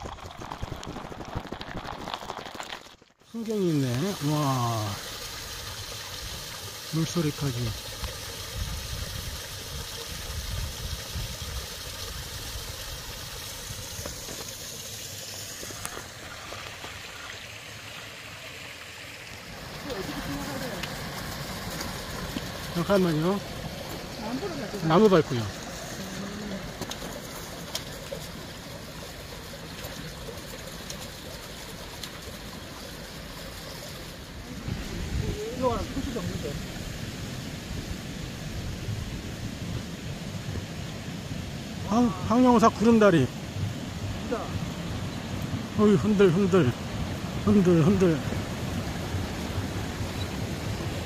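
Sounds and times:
stream water rushing: 0.0s - 51.0s.

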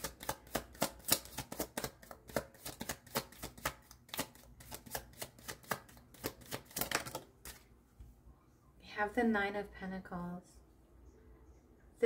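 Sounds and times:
cards being shuffled: 0.0s - 7.7s.

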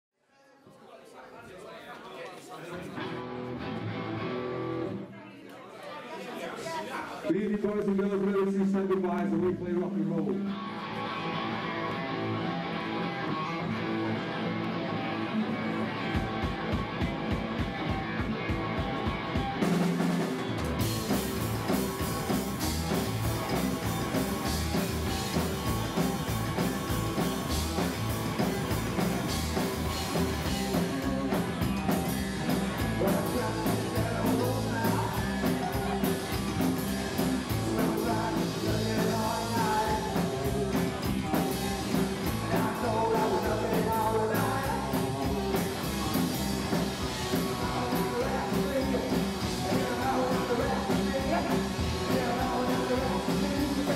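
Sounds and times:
electric guitar: 2.9s - 5.1s, 9.4s - 53.9s
man singing: 7.3s - 10.6s, 30.3s - 53.9s
drum kit: 15.6s - 53.9s
upright double bass: 20.8s - 53.9s.

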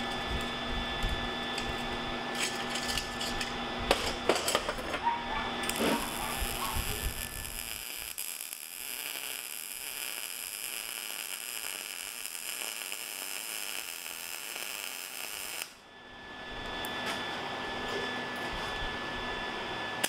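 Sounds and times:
welder arc crackling hiss: 5.6s - 15.8s.

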